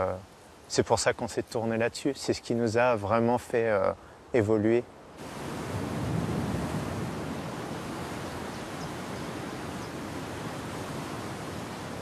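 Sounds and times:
waves washing onto pebbly shore: 5.2 - 12.0.

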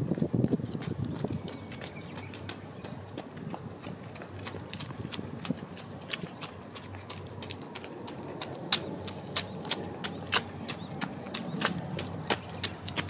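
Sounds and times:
steady low hum: 0.0 - 13.0
sharp clicks and ticks: 3.4 - 13.0.

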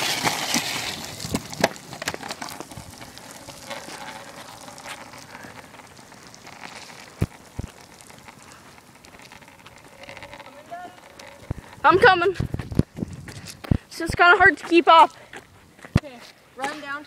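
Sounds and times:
rain pattering on pavement: 0.4 - 11.9.

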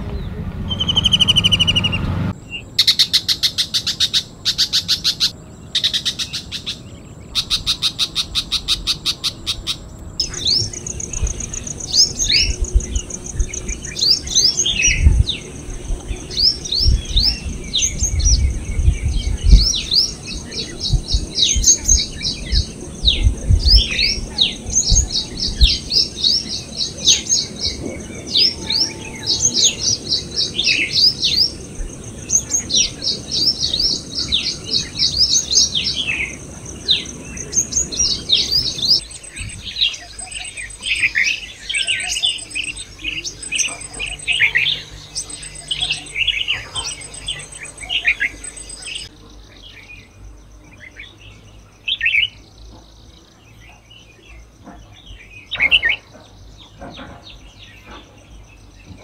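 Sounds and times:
sunbird singing: 0.0 - 59.0
bulbul chirping: 0.7 - 2.1, 7.4 - 49.1
low bumps: 9.8 - 41.0.

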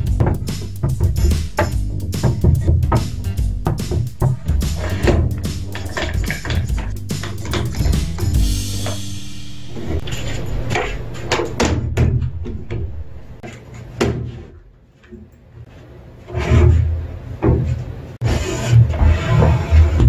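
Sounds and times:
wooden knocks and clatters: 0.0 - 9.0
heavy wooden thuds: 0.0 - 9.1, 9.8 - 13.4.

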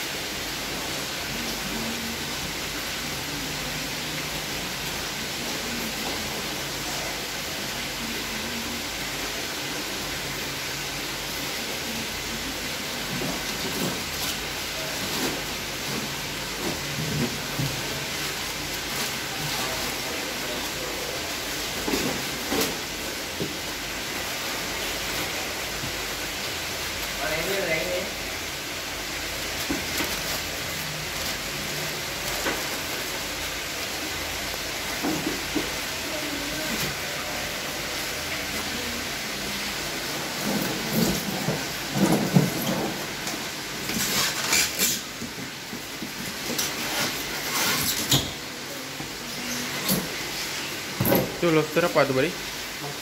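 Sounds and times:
background hiss: 0.0 - 53.0
lobsters scraping on polystyrene: 12.8 - 23.3, 29.4 - 33.4, 40.1 - 48.4
newspaper rustling and crinkling: 29.3 - 35.8.

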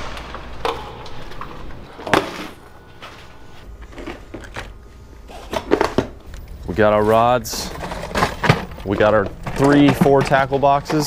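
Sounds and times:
low steady hum: 0.0 - 11.0
lures shifting in plastic box: 7.4 - 11.0.

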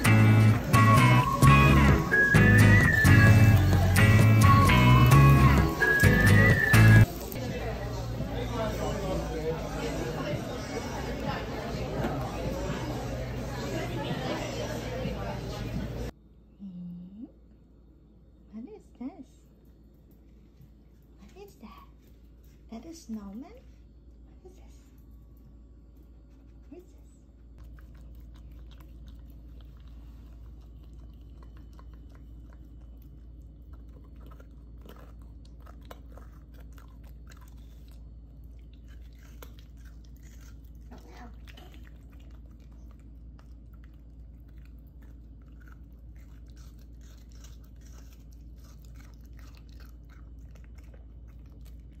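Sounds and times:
crunchy chewing clicks: 0.0 - 7.4, 27.4 - 52.0
steady low hum: 0.0 - 52.0.

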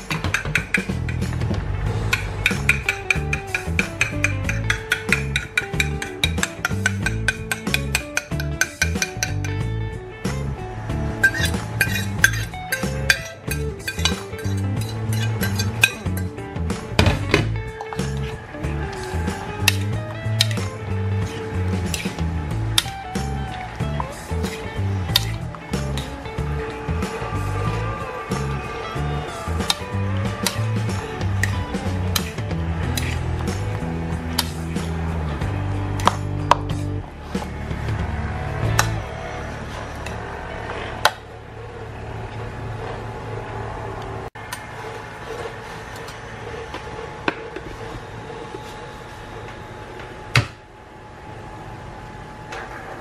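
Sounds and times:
background music with beat: 0.0 - 39.1
fork clicking in a bowl: 2.1 - 9.6.

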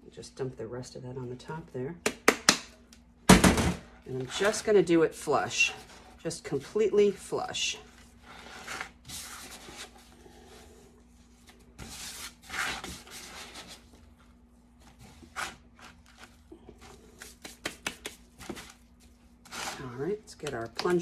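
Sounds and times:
gritty powder rustling: 18.2 - 20.1.

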